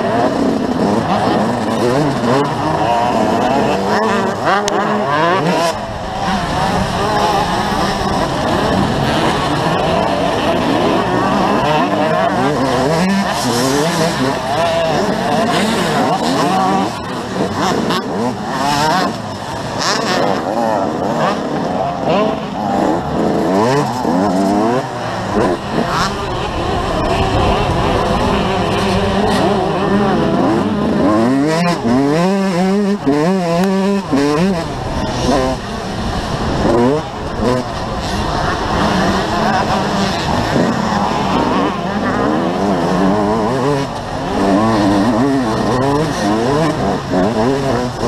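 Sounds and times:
motocross bike engine revving: 0.0s - 48.0s.

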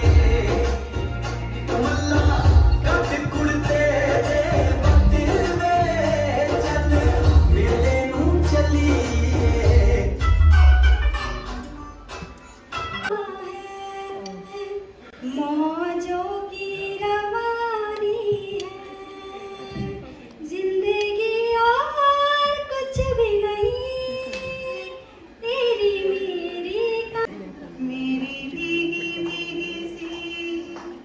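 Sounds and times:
woman singing into microphone: 13.1s - 31.0s.

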